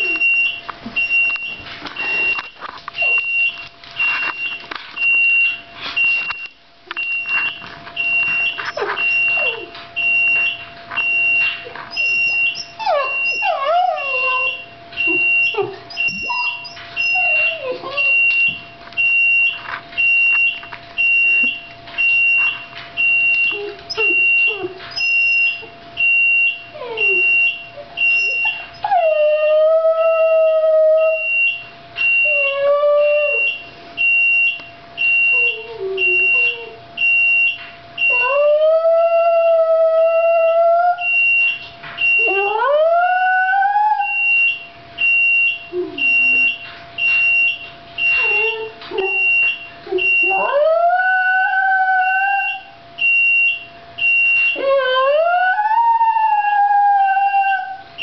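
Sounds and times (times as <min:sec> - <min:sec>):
dog whimpering: 0:00.0 - 0:00.4, 0:08.4 - 0:09.8, 0:11.6 - 0:18.4, 0:23.5 - 0:25.7, 0:26.7 - 0:31.2, 0:32.3 - 0:33.6, 0:35.3 - 0:36.8, 0:42.2 - 0:44.2, 0:45.7 - 0:46.6, 0:48.1 - 0:52.7, 0:54.6 - 0:57.8
oven alarm beeping: 0:00.0 - 0:29.3, 0:30.0 - 0:55.0
dog howling: 0:11.6 - 0:18.2, 0:26.7 - 0:31.3, 0:32.2 - 0:33.6, 0:35.3 - 0:36.8, 0:38.1 - 0:41.1, 0:42.2 - 0:44.2, 0:48.2 - 0:52.8, 0:54.6 - 0:57.9.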